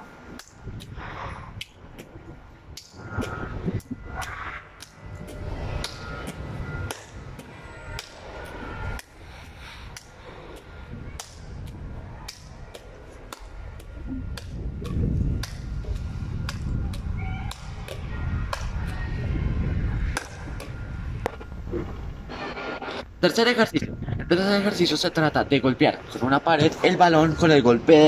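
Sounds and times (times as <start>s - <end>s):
volleyball slapping fingertips: 11.2s - 18.8s
low rumble: 13.5s - 23.2s.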